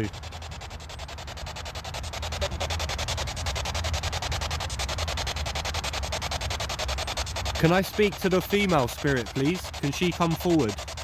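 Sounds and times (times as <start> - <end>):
low hum: 0.0 - 11.0
chopped radio static: 2.2 - 3.2.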